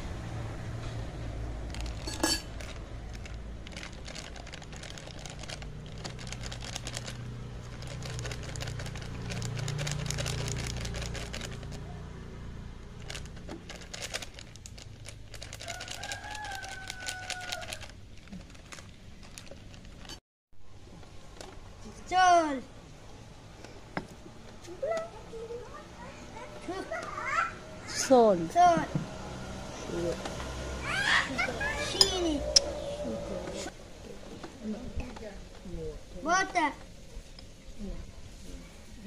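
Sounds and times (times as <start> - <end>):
plastic packet crinkling: 1.7 - 11.8, 13.0 - 20.2.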